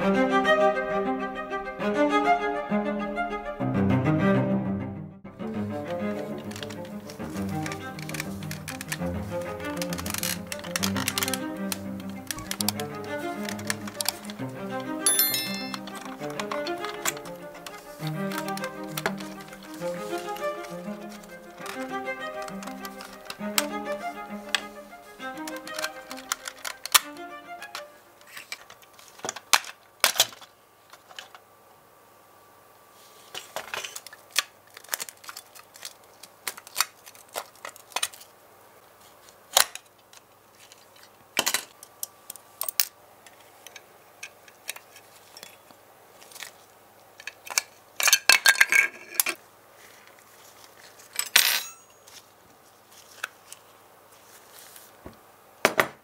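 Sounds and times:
model car parts clicking and rattling: 6.4s - 14.4s, 25.4s - 27.0s, 28.2s - 31.4s, 33.3s - 38.3s, 39.3s - 49.4s.

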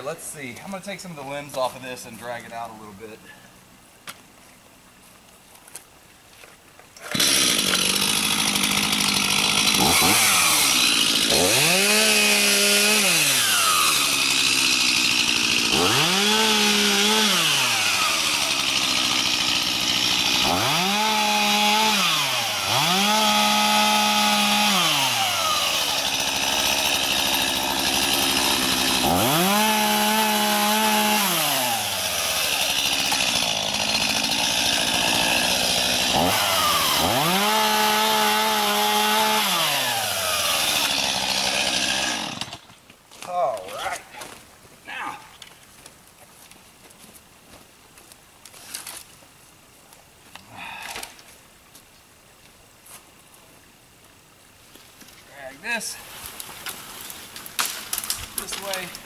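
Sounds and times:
chainsaw idling and revving: 7.0s - 42.7s, 56.7s - 59.0s.

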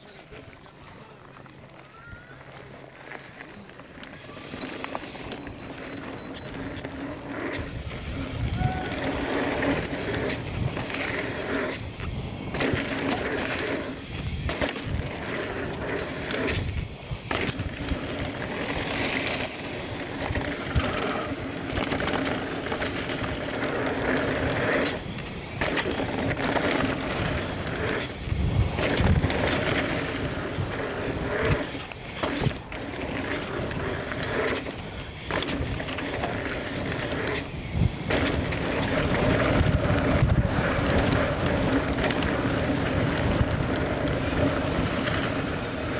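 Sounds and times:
bike knocking and rattling: 0.0s - 45.9s
bike tyres on dirt and rock: 0.0s - 45.9s
brief high squeaks: 4.2s - 6.8s, 8.4s - 10.6s.

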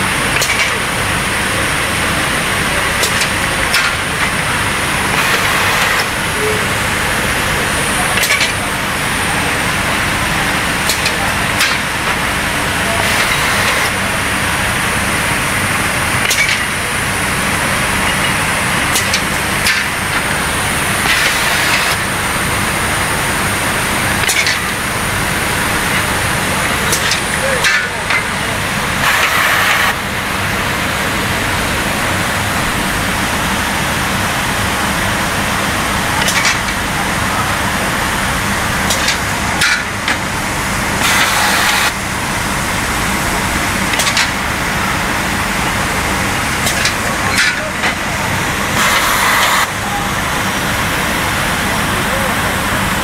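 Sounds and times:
machine hum and whine: 0.0s - 53.0s
machine clacking: 2.6s - 6.6s, 10.8s - 14.1s, 15.6s - 16.9s, 17.6s - 22.1s, 24.1s - 24.9s, 25.8s - 28.4s, 36.0s - 37.3s, 38.6s - 42.0s, 43.2s - 49.8s.

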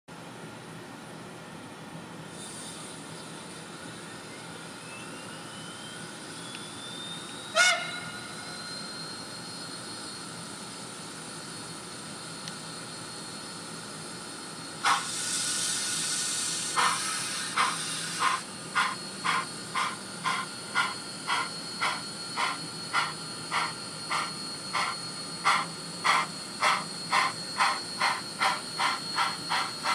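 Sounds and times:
thin whine rising in pitch: 3.1s - 10.9s, 16.7s - 29.9s
locomotive whistle toot: 7.4s - 9.0s
steam exhaust chuffs: 14.8s - 29.9s
steam hiss: 14.8s - 29.9s.

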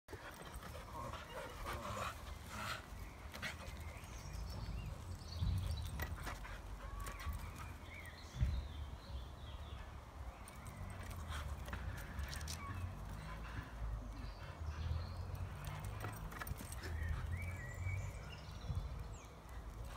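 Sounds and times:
wind rumble on microphone: 8.2s - 9.2s, 18.3s - 19.3s.

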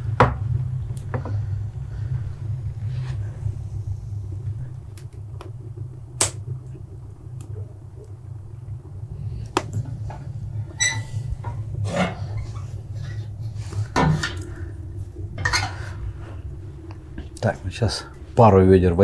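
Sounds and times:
fire crackles and pops: 0.0s - 18.5s
fire rumbling in stove: 0.0s - 19.0s
metal stove clank: 13.9s - 14.6s.

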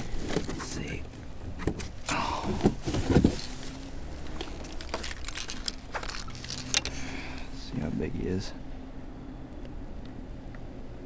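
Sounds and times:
clicks and knocks of gear: 4.2s - 7.0s.

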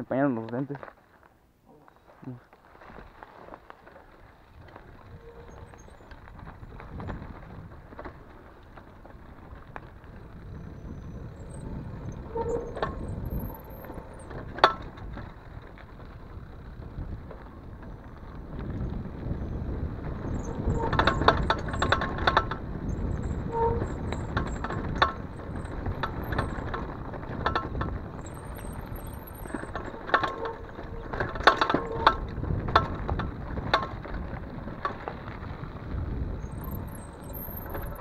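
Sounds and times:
mountain bike rattling on trail: 0.0s - 38.0s
wind on microphone: 4.5s - 8.3s, 9.0s - 38.0s.

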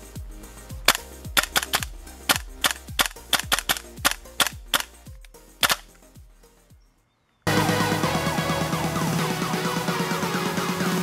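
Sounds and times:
airsoft rifle shots: 0.9s - 4.9s, 5.6s - 5.9s
bolt cycling snap: 0.9s - 6.0s.

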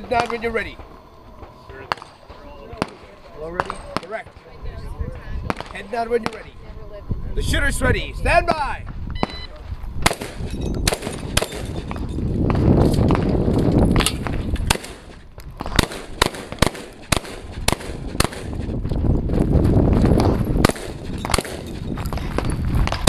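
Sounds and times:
low rumble: 0.0s - 23.0s
handgun shots: 10.0s - 11.8s, 14.0s - 18.6s, 20.6s - 21.7s.

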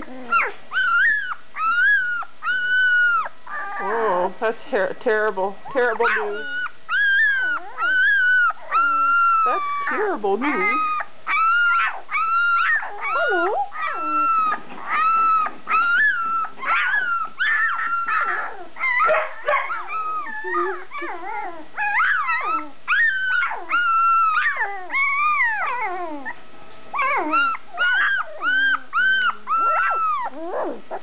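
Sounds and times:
puppies whining and squealing: 0.0s - 4.3s, 5.6s - 31.0s.

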